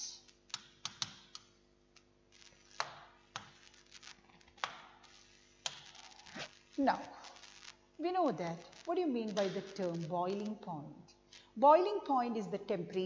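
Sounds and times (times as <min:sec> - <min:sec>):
low steady hum: 0:00.0 - 0:13.0
stylus tapping on tablet: 0:00.5 - 0:01.4.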